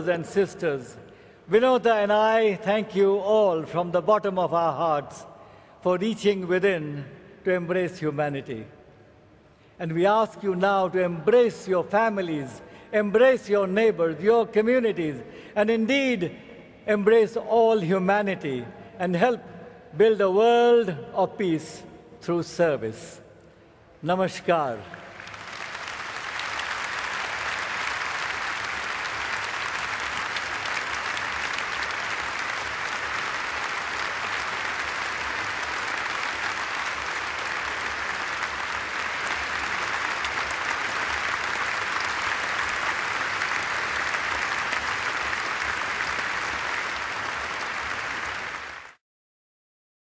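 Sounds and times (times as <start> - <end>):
large audience applauding: 24.9 - 49.0.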